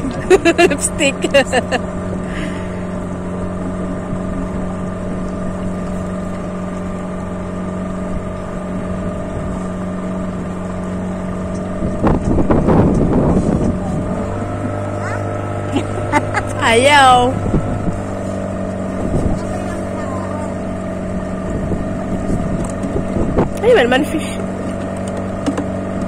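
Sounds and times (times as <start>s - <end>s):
motorboat engine running: 0.0s - 26.0s.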